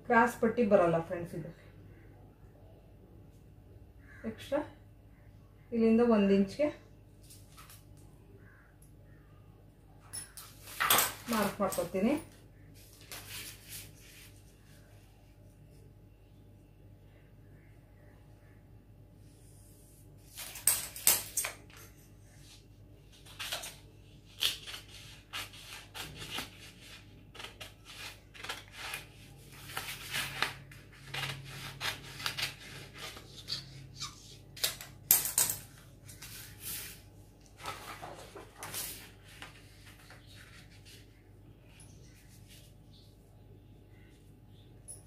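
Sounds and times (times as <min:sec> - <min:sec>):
paper rustling: 0:12.8 - 0:14.8, 0:23.1 - 0:34.7, 0:35.8 - 0:41.2.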